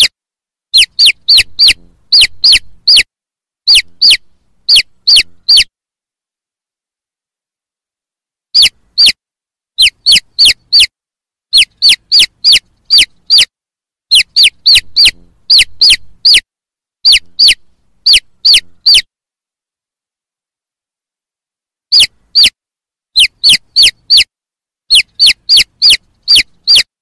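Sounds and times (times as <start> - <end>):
chick peeping: 0.7 - 3.1, 3.7 - 5.7, 8.6 - 9.2, 9.8 - 10.9, 11.5 - 13.5, 14.1 - 16.4, 17.0 - 19.1, 21.9 - 22.6, 23.2 - 24.3, 24.9 - 26.9.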